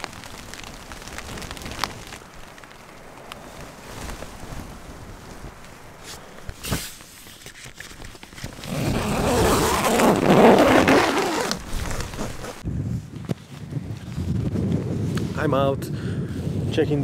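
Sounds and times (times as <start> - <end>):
fabric rustling: 0.0 - 12.7
tent door unzipping: 6.6 - 12.6.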